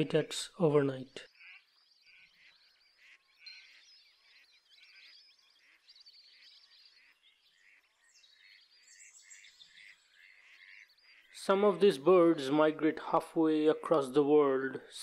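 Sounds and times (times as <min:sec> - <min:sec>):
wetland birds calling: 0:00.0 - 0:15.0
ducks quacking: 0:01.2 - 0:08.0, 0:09.6 - 0:13.1.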